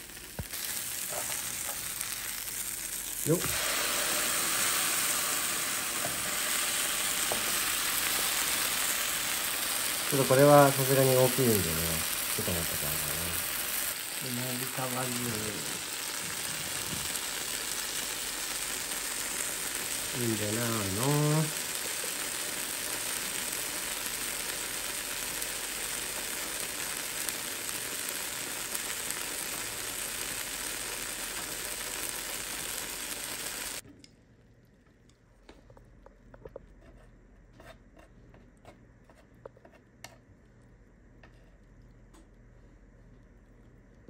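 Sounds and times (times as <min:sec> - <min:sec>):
small crackles: 0:00.0 - 0:03.5
food sizzling on a hot plate: 0:00.0 - 0:33.8.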